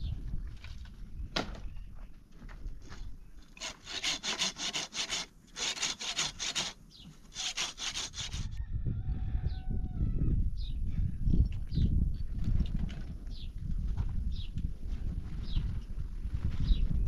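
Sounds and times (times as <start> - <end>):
hand saw cutting a branch: 3.6 - 8.6.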